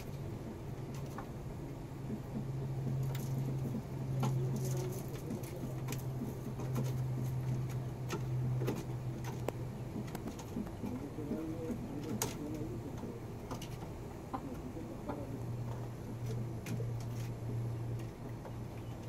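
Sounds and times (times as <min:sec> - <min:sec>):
steady low hum: 0:00.0 - 0:19.0
bird feet scratching on litter: 0:02.9 - 0:12.7.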